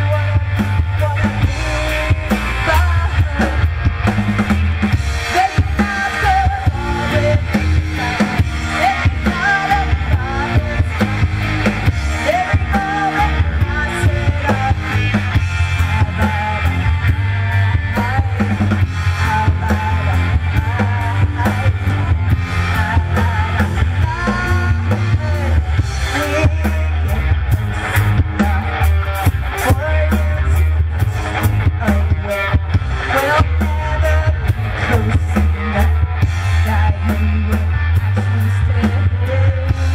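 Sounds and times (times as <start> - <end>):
drum kit: 0.0 - 39.9
electric guitar: 0.0 - 39.9
rock band playing: 0.0 - 39.9
woman singing: 1.0 - 3.6, 5.2 - 11.3, 12.0 - 15.2, 19.2 - 27.1.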